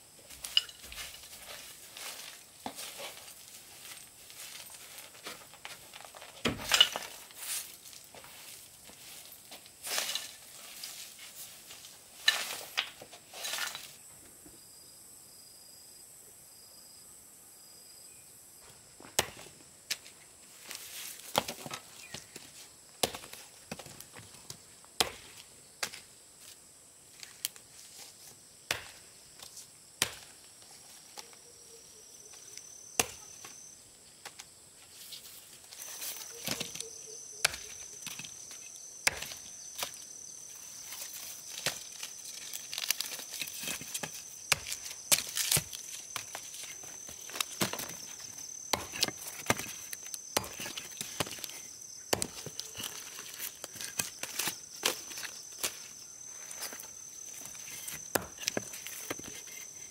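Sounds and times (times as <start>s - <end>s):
scraping and rustling: 39.4s - 59.9s.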